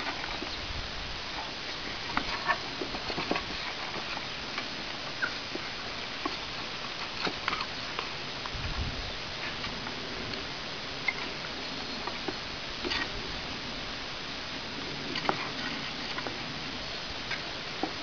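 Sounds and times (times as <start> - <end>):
steady hiss: 0.0 - 18.0
puppy paws scrabbling on wood: 1.4 - 8.2.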